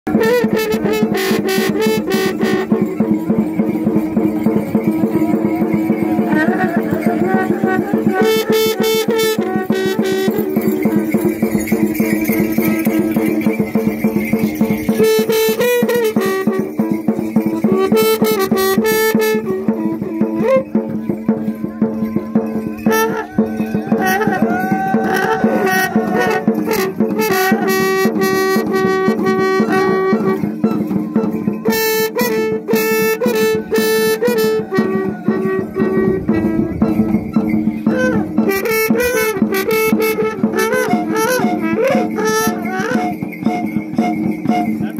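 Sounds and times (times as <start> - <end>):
horns playing long notes: 0.1 - 3.0, 5.5 - 11.0, 15.0 - 17.0, 17.7 - 20.8, 21.4 - 44.9
drumming: 0.1 - 44.9
shrill rattling sound: 0.4 - 44.9.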